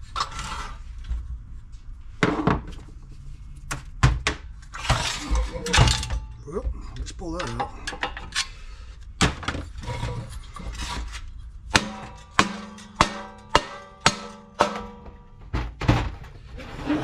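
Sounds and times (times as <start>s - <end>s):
rubber mallet striking metal casing: 11.7s - 15.2s.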